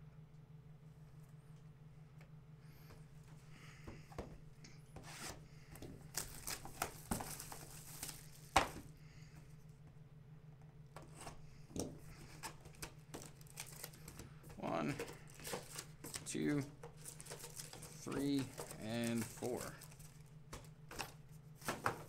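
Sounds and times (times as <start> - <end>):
steady low hum: 0.0 - 22.0
plastic crinkling and scraping: 6.0 - 8.8, 12.2 - 22.0.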